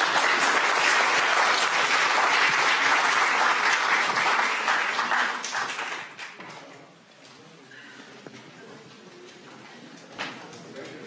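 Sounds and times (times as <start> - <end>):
audience applauding: 0.0 - 6.4.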